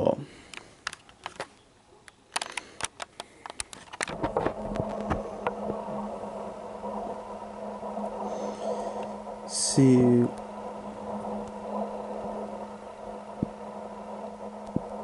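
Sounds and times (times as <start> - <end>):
steady mechanical hum: 2.2 - 15.0.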